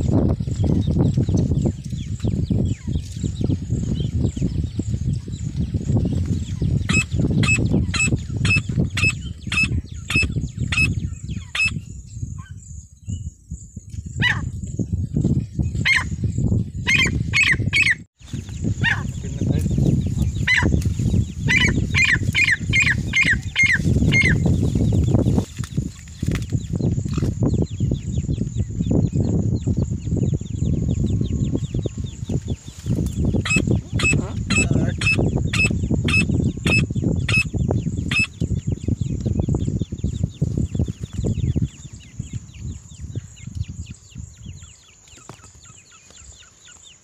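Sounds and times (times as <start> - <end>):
francolin calling: 6.6 - 11.8, 18.7 - 24.9, 33.1 - 39.0.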